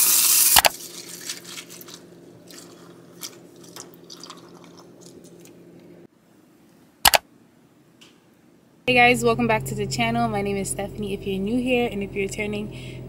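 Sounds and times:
cereal crackling: 0.4s - 5.4s
milk trickling into bowl: 0.7s - 5.5s
low steady hum: 0.7s - 13.0s.

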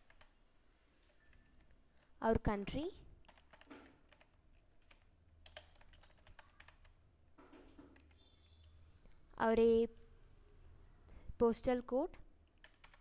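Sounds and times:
faint keyboard typing: 0.0s - 0.4s, 1.0s - 9.2s, 12.1s - 13.0s.

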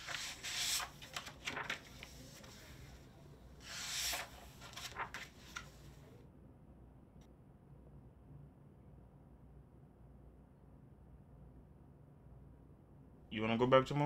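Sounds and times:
paper pages turning: 0.0s - 3.0s, 3.6s - 6.1s.

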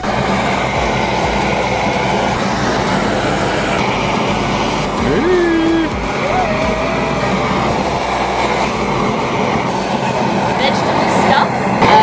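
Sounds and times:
gas camping stove burning: 0.0s - 12.0s.

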